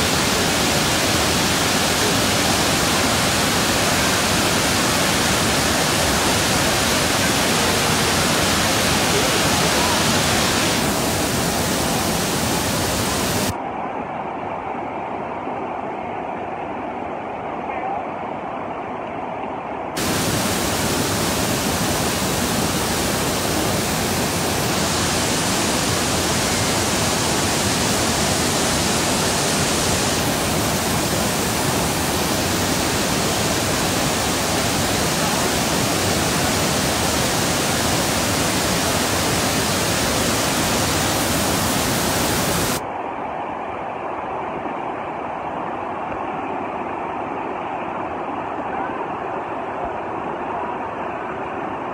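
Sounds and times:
river roaring over rocky falls: 0.0s - 13.6s, 20.0s - 42.8s
rush of fast floodwater: 0.0s - 13.6s, 20.0s - 42.8s.

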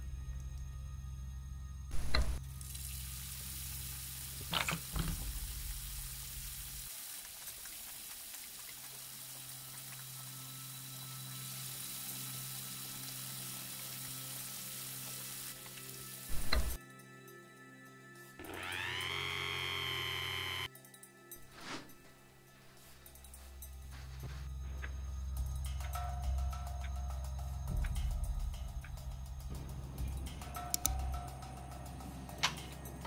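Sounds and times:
tap water running into a sink: 2.8s - 10.7s.

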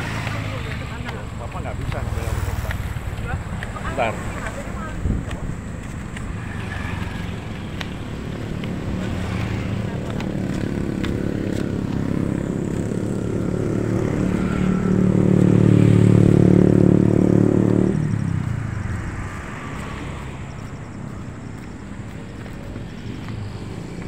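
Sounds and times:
motorcycle engine running: 0.0s - 19.1s.

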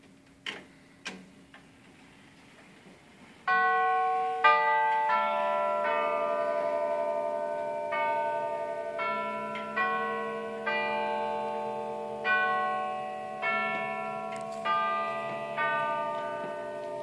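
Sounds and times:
tubular clock chimes: 3.5s - 17.0s.

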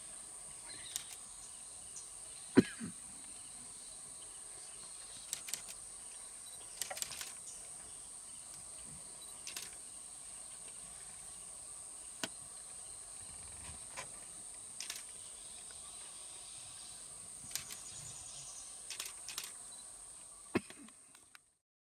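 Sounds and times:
insects droning: 0.0s - 21.4s
sharp clicks and ticks: 14.8s - 15.1s, 18.9s - 19.6s.

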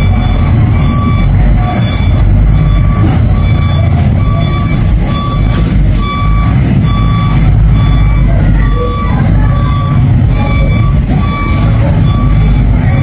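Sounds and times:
electronic beeper short beeps: 0.0s - 13.0s
loud steady low rumble: 0.0s - 13.0s.

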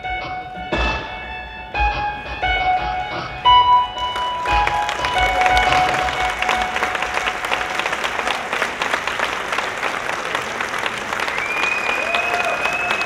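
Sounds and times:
audience applauding: 3.8s - 13.0s
high cheer: 3.9s - 13.0s.

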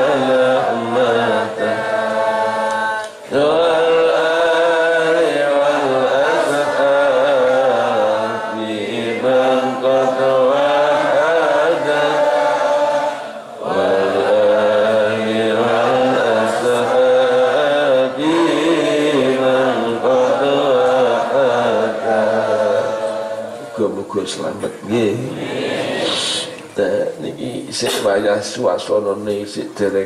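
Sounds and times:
man chanting: 0.0s - 12.2s, 13.8s - 25.4s.

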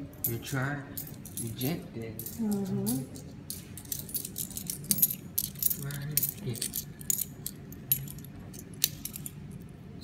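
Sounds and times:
low steady hum: 0.0s - 10.0s
coins clinking in a hand: 0.2s - 9.5s.

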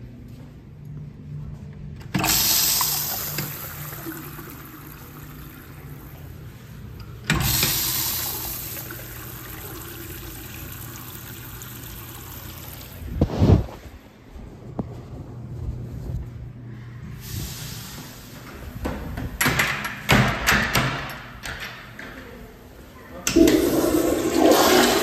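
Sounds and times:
urinal flushing: 2.1s - 13.4s, 23.3s - 25.0s.

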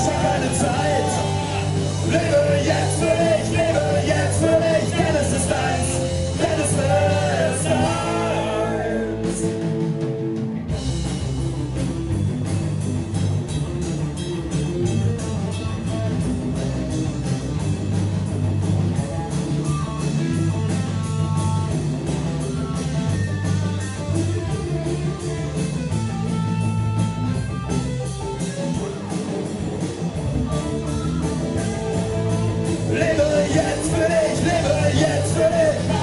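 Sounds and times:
person singing: 0.0s - 9.5s, 32.9s - 36.0s
distorted electric guitars: 0.0s - 36.0s
drum kit: 0.0s - 36.0s.

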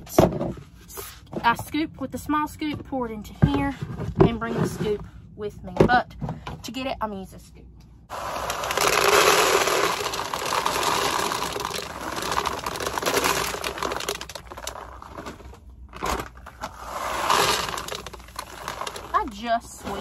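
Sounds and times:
dry feed pouring into container: 8.1s - 15.2s, 16.7s - 19.2s
plastic bag rustling: 8.1s - 20.0s.

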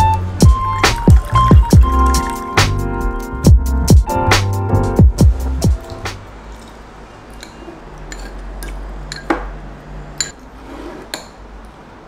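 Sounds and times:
cutlery clinking on ceramic bowl: 7.4s - 9.4s, 10.2s - 10.4s.

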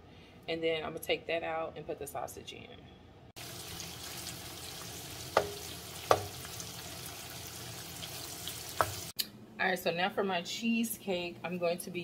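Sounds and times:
bacon sizzling in a pan: 3.4s - 9.2s.

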